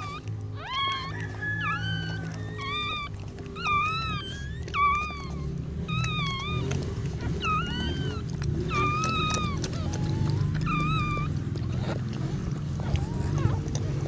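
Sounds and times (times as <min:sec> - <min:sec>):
puppies whining: 0:00.0 - 0:14.0.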